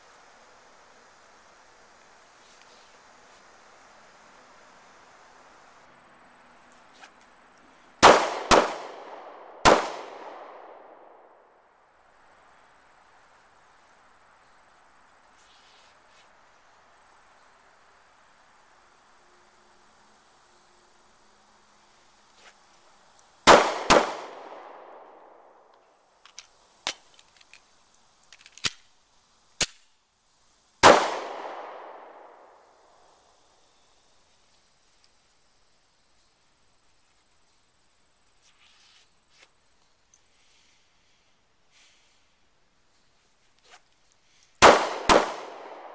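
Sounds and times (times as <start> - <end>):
pistol shots echoing: 8.0 - 11.1, 23.5 - 25.0, 30.8 - 32.3, 44.6 - 45.9.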